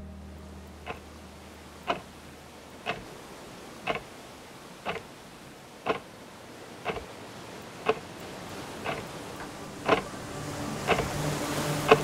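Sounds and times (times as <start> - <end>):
faint steady hiss: 0.0 - 12.0
clock ticking: 0.8 - 2.1, 2.7 - 3.1, 3.9 - 4.1, 4.8 - 5.1, 5.8 - 6.1, 6.8 - 10.1, 10.9 - 11.1.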